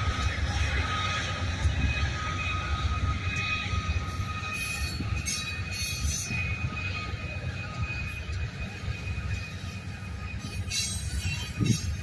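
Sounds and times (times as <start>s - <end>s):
train wheels rumbling on rails: 0.0s - 12.0s
faint high squeal: 0.1s - 12.0s.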